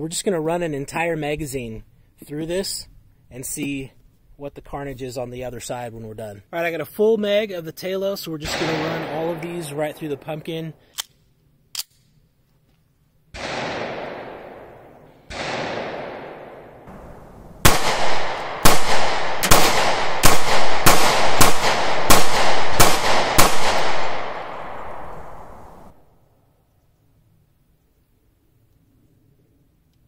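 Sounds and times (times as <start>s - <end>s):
pistol shots echoing: 8.4s - 10.8s, 13.4s - 25.9s.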